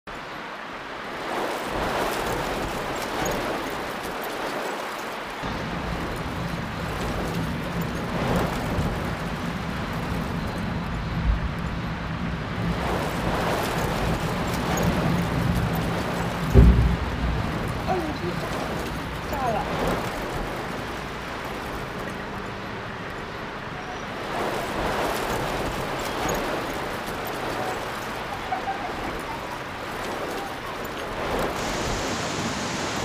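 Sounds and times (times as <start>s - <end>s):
low rumble: 5.4s - 20.5s
storm noise: 5.4s - 22.4s, 24.1s - 33.0s
water gushing down stairs: 12.6s - 23.1s, 24.2s - 33.0s.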